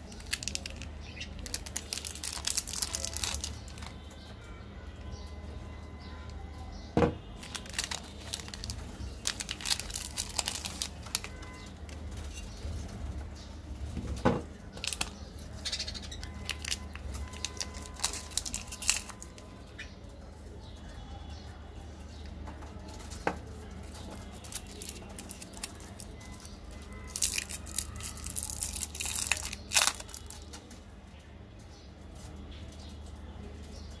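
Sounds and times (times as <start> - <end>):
plastic wrappers crinkling: 0.0 - 4.2, 7.2 - 13.0, 14.4 - 19.6, 22.8 - 30.8.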